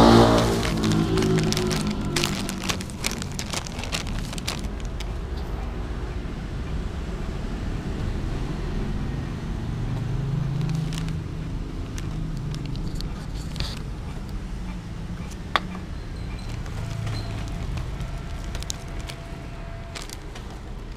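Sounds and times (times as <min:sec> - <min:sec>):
plastic bag and foil pouch crinkling: 0:00.0 - 0:05.6, 0:10.5 - 0:14.0, 0:16.3 - 0:20.9
low rumble of traffic: 0:00.0 - 0:20.9.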